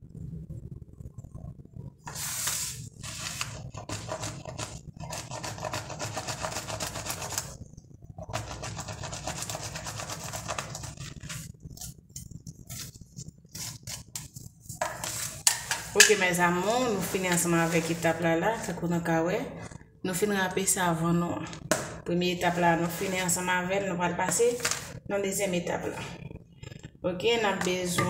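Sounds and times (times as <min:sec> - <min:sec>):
steady low hum: 0:00.0 - 0:28.0
soap grated on metal grater: 0:03.0 - 0:07.6, 0:08.2 - 0:12.0.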